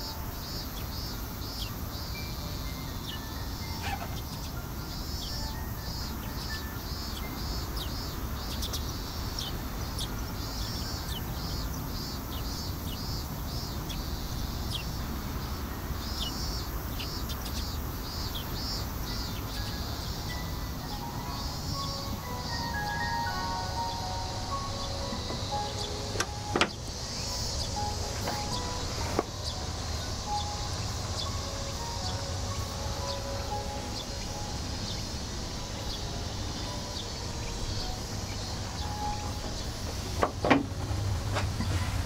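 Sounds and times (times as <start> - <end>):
high chirping calls: 0.0 - 40.1
steady low rumble: 23.6 - 42.0.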